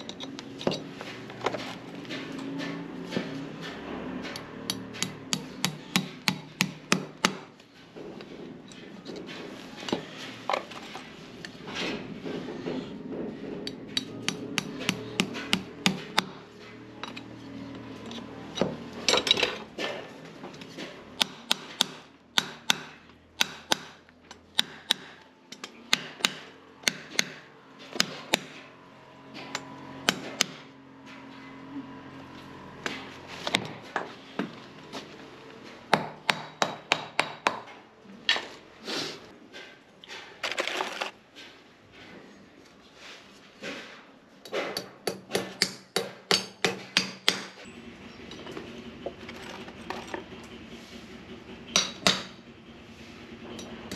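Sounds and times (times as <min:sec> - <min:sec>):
hammer tapping horseshoe nails: 0:04.2 - 0:07.6, 0:13.5 - 0:17.3, 0:21.2 - 0:28.6, 0:44.5 - 0:47.6, 0:51.7 - 0:52.4.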